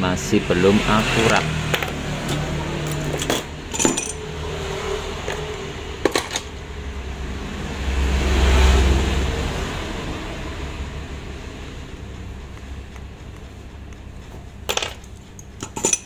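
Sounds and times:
steady low hum: 9.0s - 16.0s.

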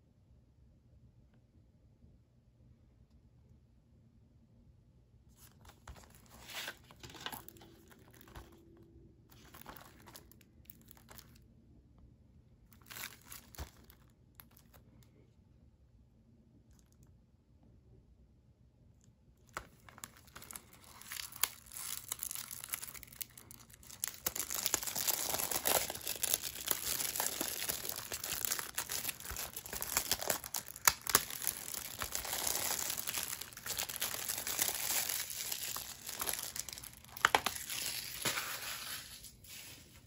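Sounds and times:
plastic shrink wrap tearing: 12.7s - 14.8s, 19.5s - 39.3s.

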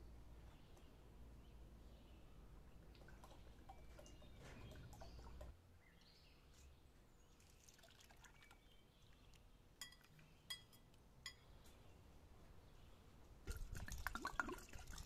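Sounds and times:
thick liquid pouring into pot: 7.5s - 8.6s, 13.5s - 15.0s
fork clinking against bowl: 9.8s - 11.5s.

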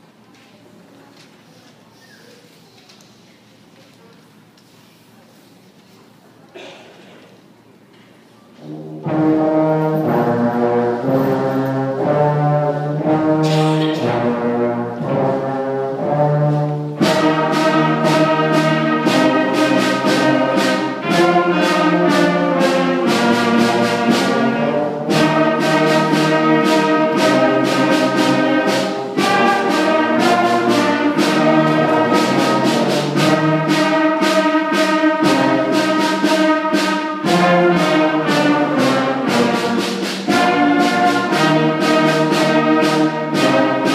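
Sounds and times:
concert band playing: 8.6s - 43.9s
sharp percussion strikes: 8.7s - 15.4s, 16.9s - 43.9s.

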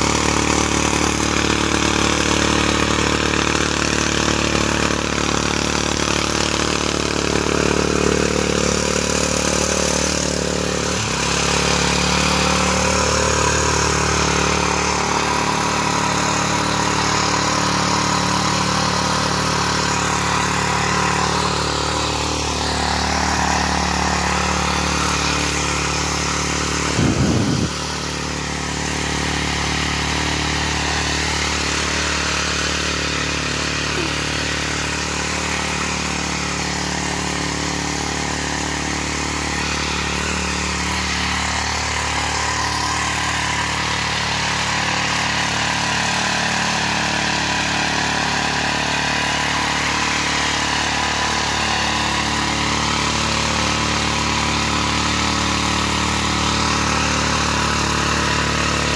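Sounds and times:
garden tiller running: 0.0s - 58.9s
rattling burst: 6.6s - 45.5s.

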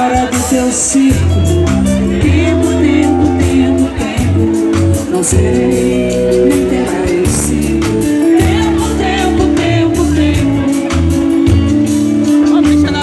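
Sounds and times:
live band music: 0.0s - 13.0s
woman singing: 2.2s - 10.8s.

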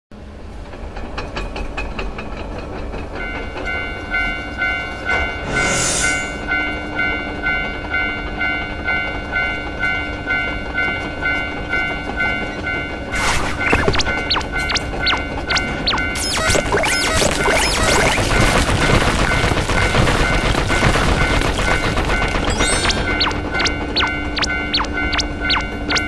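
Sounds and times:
train wheels clicking on rails: 0.2s - 5.8s, 6.5s - 16.2s, 18.0s - 26.0s
level crossing warning bell: 3.1s - 26.0s
loud noisy burst: 16.2s - 24.8s.

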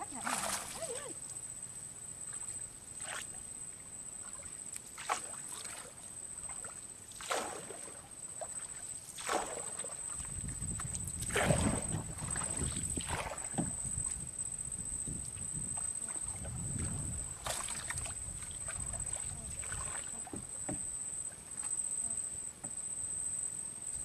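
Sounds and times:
water splashing off net: 0.2s - 0.9s, 4.3s - 10.3s, 11.2s - 13.8s, 17.3s - 20.4s.

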